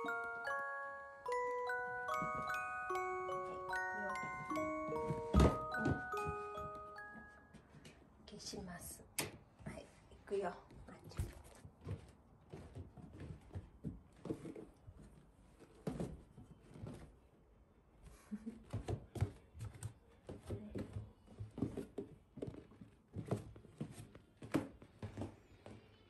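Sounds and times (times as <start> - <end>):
footsteps on wooden floor: 1.6 - 7.8, 11.0 - 17.1, 18.7 - 25.9.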